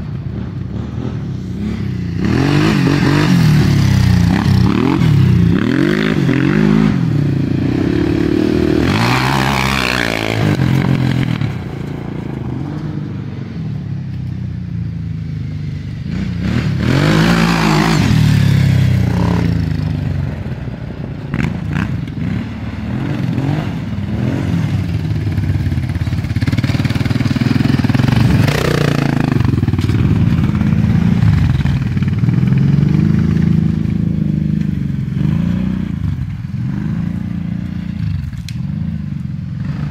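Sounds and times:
quad bike engine revving: 0:00.0 - 0:13.4, 0:15.1 - 0:39.9.

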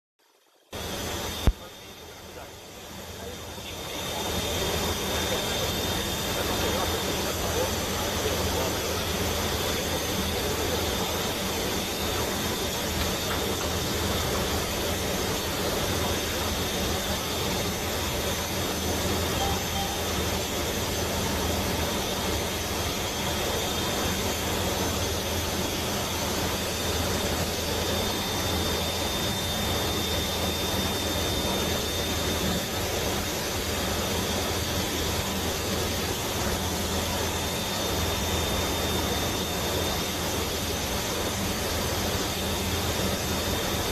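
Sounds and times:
turboprop engines droning: 0:00.6 - 0:43.9
thin high whine: 0:09.8 - 0:32.8.

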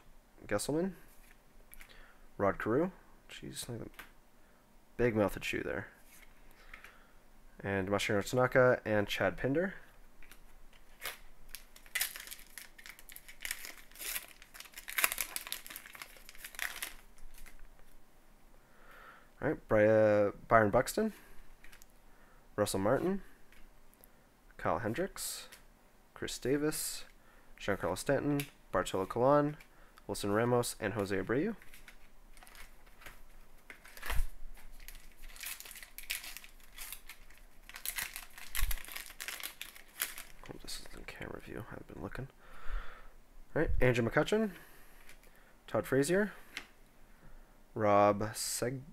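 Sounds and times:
wrapper crinkling and tearing: 0:10.2 - 0:17.7, 0:31.6 - 0:40.8.

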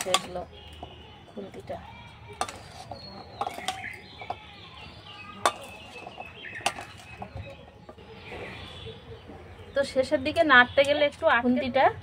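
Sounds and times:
birds chirping: 0:00.0 - 0:12.0
metal spatula scraping a pan: 0:02.3 - 0:04.2, 0:05.4 - 0:07.3.

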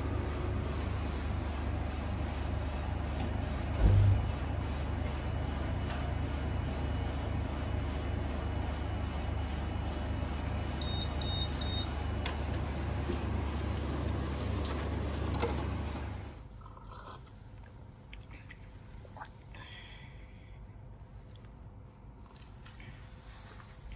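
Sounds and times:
machine humming: 0:01.7 - 0:07.4
heavy thud: 0:03.7 - 0:04.4.

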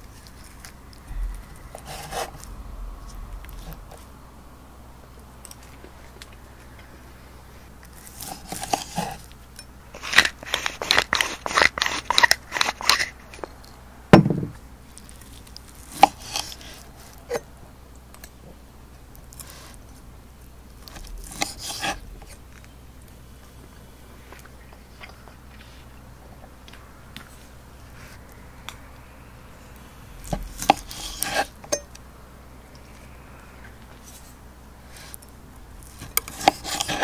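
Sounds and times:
knife sawing through steak crust: 0:08.2 - 0:09.3, 0:15.9 - 0:16.9, 0:21.2 - 0:22.0, 0:30.5 - 0:31.5, 0:36.0 - 0:37.0.

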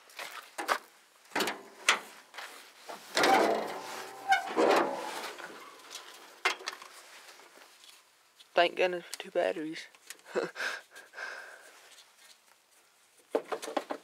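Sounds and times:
hood hinges creaking and squeaking: 0:02.9 - 0:06.9.

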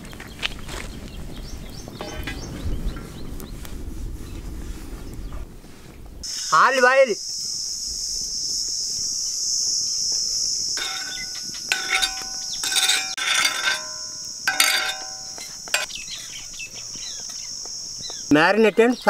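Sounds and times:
steady high hiss: 0:06.1 - 0:19.0.

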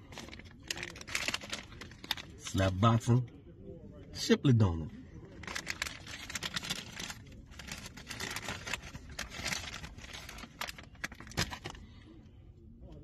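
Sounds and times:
paper bag crinkling: 0:00.0 - 0:02.5, 0:05.4 - 0:11.8.

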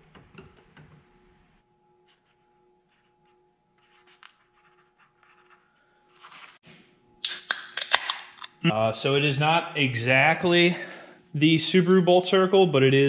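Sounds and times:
pen scratching on paper: 0:03.8 - 0:06.6
sharp clicks and taps: 0:07.3 - 0:08.6.

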